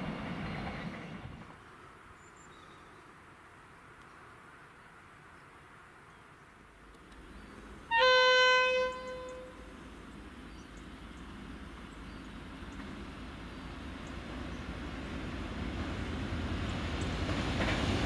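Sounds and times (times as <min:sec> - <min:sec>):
locomotive horn: 0:07.9 - 0:09.7.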